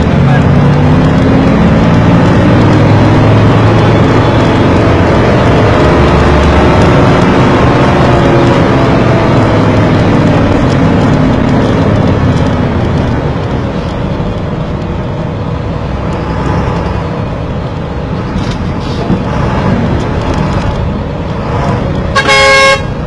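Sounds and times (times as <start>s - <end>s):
engine and road noise: 0.0s - 23.0s
vehicle horn blast: 22.1s - 23.0s.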